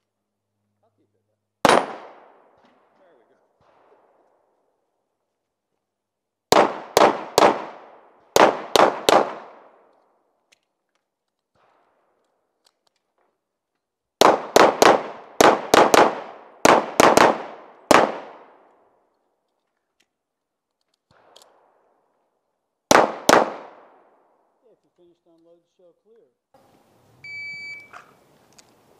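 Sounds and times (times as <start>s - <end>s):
pistol shots with echo: 1.6s - 4.3s, 6.5s - 9.9s, 14.2s - 18.7s, 22.9s - 24.4s.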